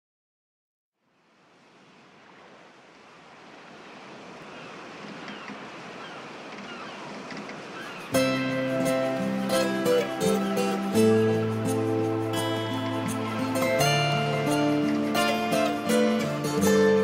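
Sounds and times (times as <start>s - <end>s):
sea waves washing in: 1.1s - 17.0s.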